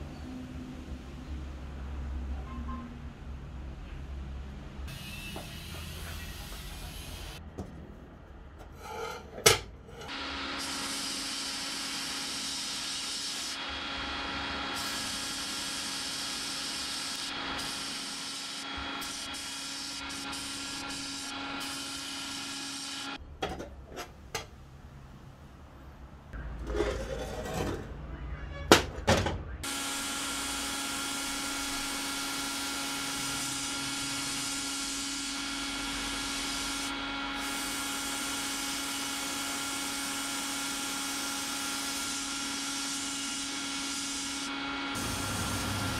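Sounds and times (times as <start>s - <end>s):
parts knocking and clanking: 23.3s - 24.6s, 28.6s - 29.6s.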